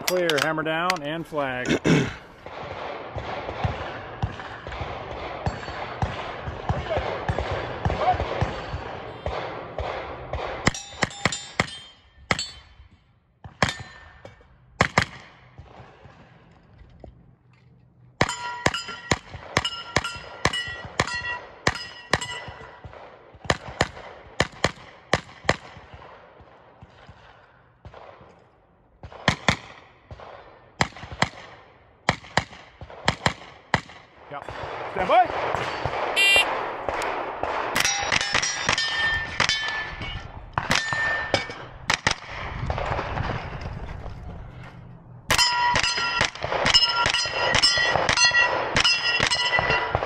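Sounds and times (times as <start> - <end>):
steel targets ringing: 10.6 - 12.9, 13.6 - 14.4, 18.2 - 22.8, 37.8 - 41.8, 45.3 - 50.0.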